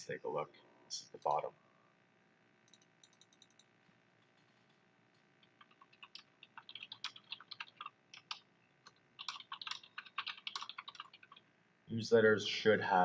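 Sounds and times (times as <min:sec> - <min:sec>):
keyboard typing: 0:02.6 - 0:03.7, 0:04.3 - 0:11.4.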